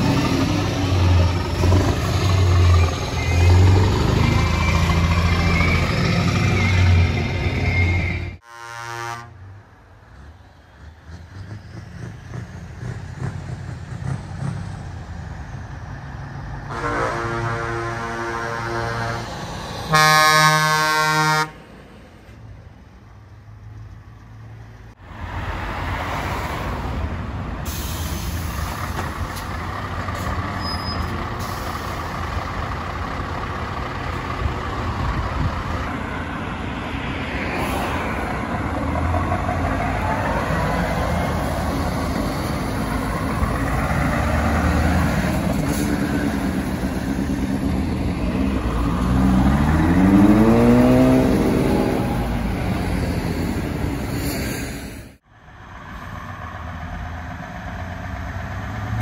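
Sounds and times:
truck engine revving: 0:00.0 - 0:08.4, 0:10.2 - 0:21.6, 0:37.4 - 0:54.3
truck diesel engines rumbling: 0:00.0 - 0:59.0.

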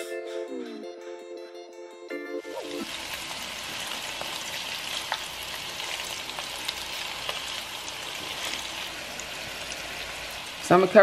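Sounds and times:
meatballs sizzling in grease: 0:02.6 - 0:11.0
small crackles and pops: 0:04.9 - 0:07.5.

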